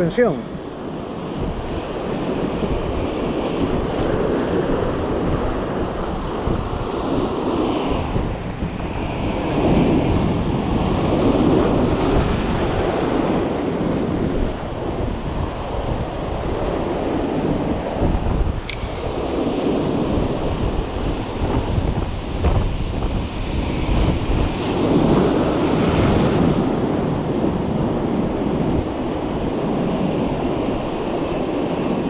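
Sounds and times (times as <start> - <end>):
surf washing over rocks: 0.0 - 32.0
wind buffeting microphone: 0.0 - 32.0.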